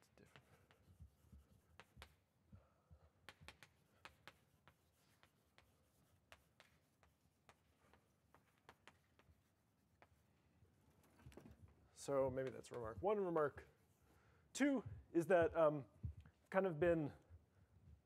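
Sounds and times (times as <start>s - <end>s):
chalk tapping and scratching: 0.0s - 14.1s.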